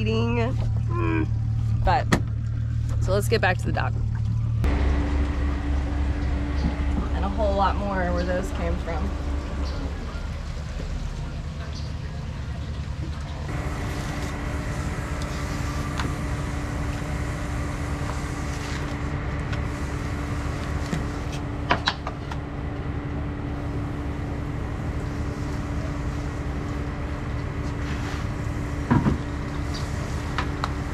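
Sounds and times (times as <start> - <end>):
steady low hum: 0.0 - 30.9.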